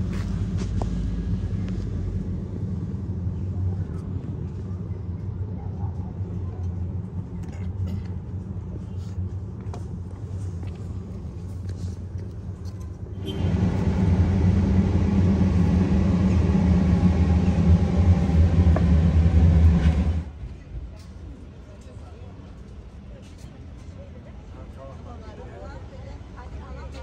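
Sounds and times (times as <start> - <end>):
low rumble with deep hum: 0.0 - 20.6.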